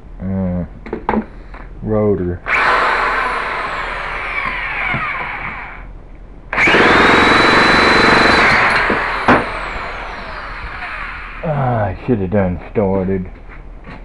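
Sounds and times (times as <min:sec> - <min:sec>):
starter whine: 0:02.4 - 0:05.9, 0:06.5 - 0:12.3
electric starter cranking engine: 0:02.5 - 0:05.9, 0:06.5 - 0:11.5.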